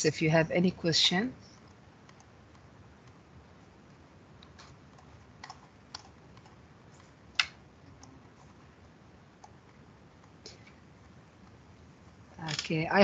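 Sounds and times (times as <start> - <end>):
faint room hiss: 0.0 - 13.0
computer mouse clicks: 1.5 - 3.2, 4.4 - 8.5, 9.4 - 10.8.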